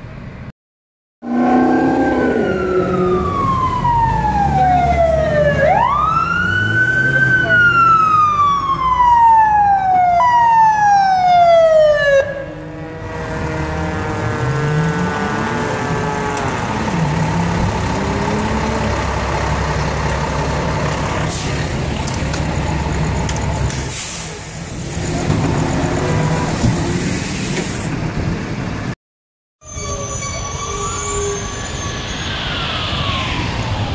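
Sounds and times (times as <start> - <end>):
truck diesel engine accelerating: 1.2 - 9.0, 12.4 - 29.0
fire engine siren: 1.2 - 24.6, 29.6 - 33.9.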